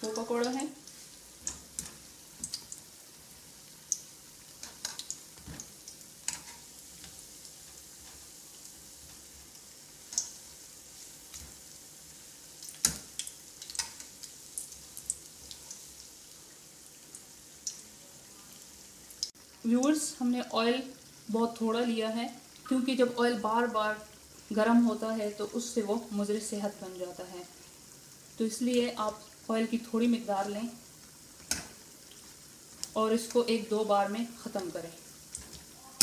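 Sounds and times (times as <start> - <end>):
fritters sizzling in oil: 0.0 - 36.0.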